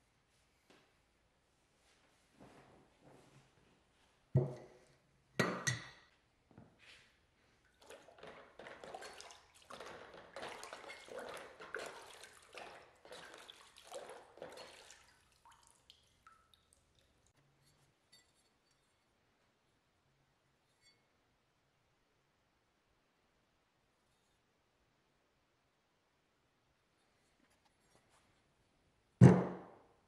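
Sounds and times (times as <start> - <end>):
liquid sloshing in a bucket: 7.6 - 17.4.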